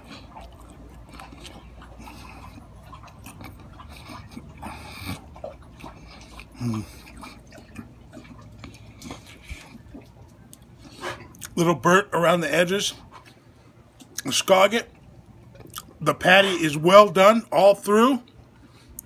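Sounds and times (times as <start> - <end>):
man chewing food: 0.0 - 19.0
man humming mm: 6.6 - 7.0.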